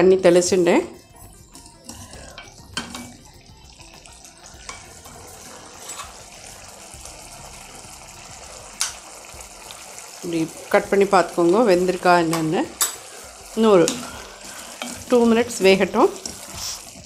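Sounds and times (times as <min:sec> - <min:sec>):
curry sizzling: 0:00.0 - 0:17.0
wooden spatula scraping a pan: 0:04.7 - 0:06.2, 0:12.8 - 0:17.0.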